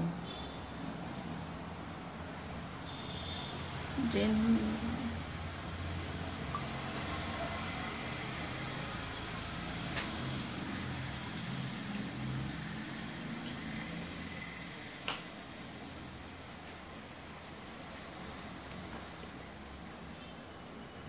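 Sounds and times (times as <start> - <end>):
low background hum: 0.0 - 7.4.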